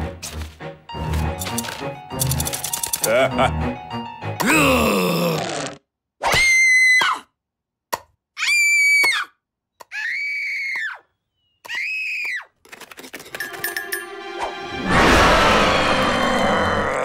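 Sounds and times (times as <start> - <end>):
music and sound effects: 0.0 - 4.4, 13.4 - 17.0.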